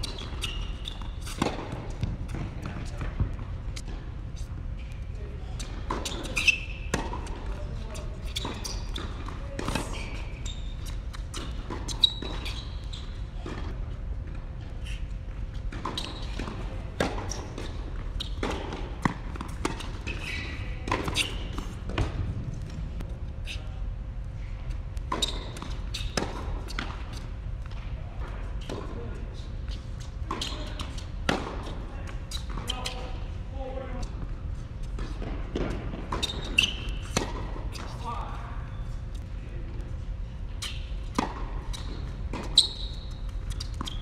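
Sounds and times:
steady low hum: 0.0s - 44.0s
tennis balls struck and bouncing: 0.1s - 4.1s.

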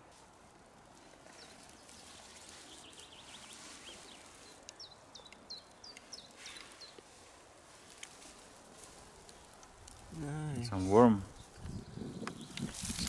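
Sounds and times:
songbird chirping: 1.0s - 13.0s.

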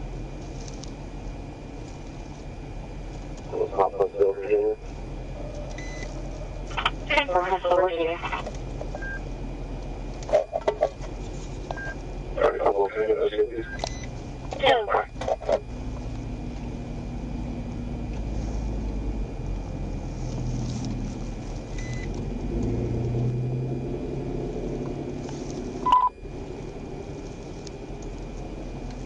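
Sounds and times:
vehicle engines idling: 0.0s - 29.0s.

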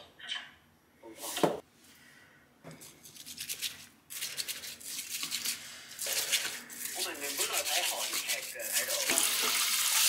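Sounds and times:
chopsticks scratching steel bowl: 6.1s - 9.3s.

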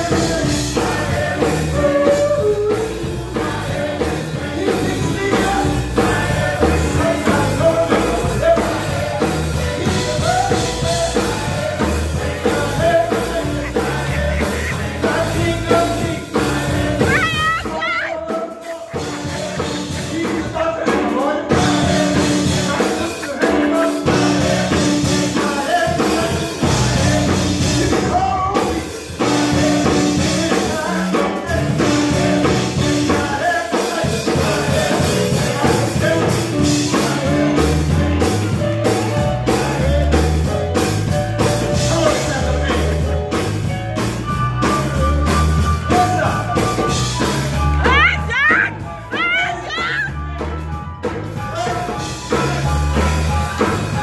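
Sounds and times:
people singing: 0.0s - 50.5s, 51.4s - 54.0s
band drums and bass: 0.0s - 54.0s.

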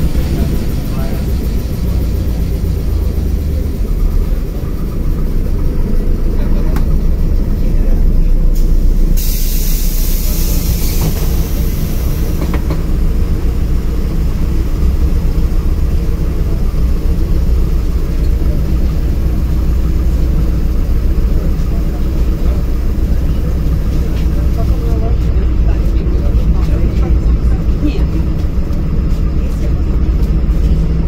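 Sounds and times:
bus engine and road rumble: 0.0s - 31.0s
air hiss: 8.6s - 12.5s.

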